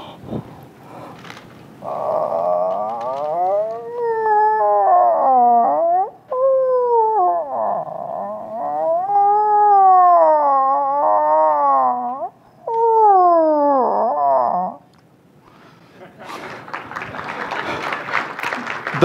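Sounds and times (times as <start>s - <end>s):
man imitating moose call: 1.8s - 14.8s.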